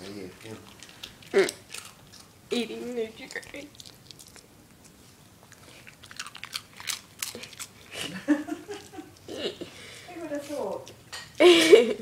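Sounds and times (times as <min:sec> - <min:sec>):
dog crunching cereal: 0:00.1 - 0:09.3.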